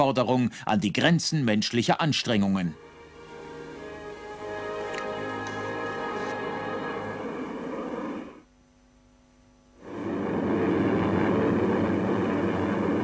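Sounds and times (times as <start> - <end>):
sustained music: 2.3 - 8.4
propeller bombers droning in flight: 9.9 - 13.0.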